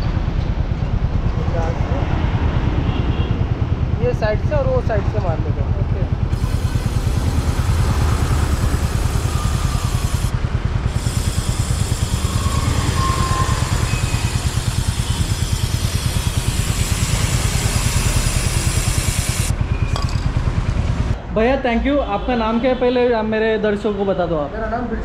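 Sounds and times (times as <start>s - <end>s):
motorcycle engine idling: 3.5s - 21.2s
aerosol can hissing: 6.3s - 10.3s, 10.9s - 19.5s.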